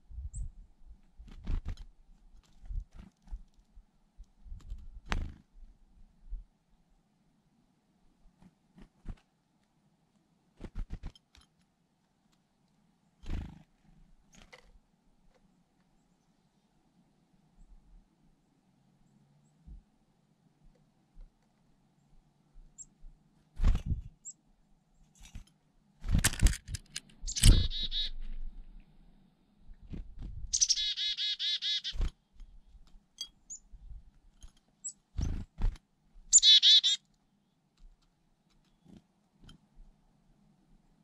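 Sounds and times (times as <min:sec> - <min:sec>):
chickadees calling: 0:27.3 - 0:28.2, 0:30.5 - 0:32.0, 0:36.3 - 0:37.0.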